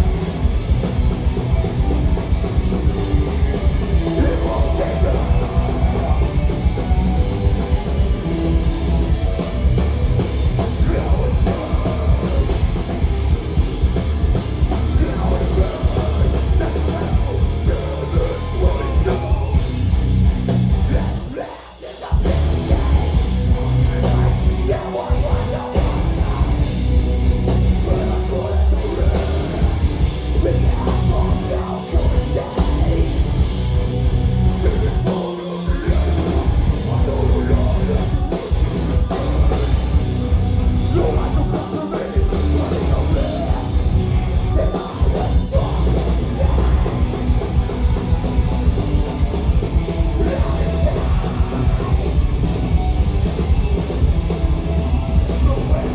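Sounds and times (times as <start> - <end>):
distorted guitars: 0.0 - 55.9
pounding drum kit: 0.0 - 55.9
harsh shouted vocals: 14.6 - 19.6, 20.8 - 26.6.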